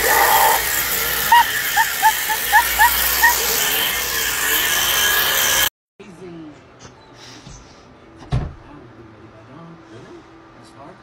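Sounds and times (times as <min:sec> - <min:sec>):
toy chainsaw buzzing: 0:00.0 - 0:05.7
high-pitched giggles: 0:01.3 - 0:03.8.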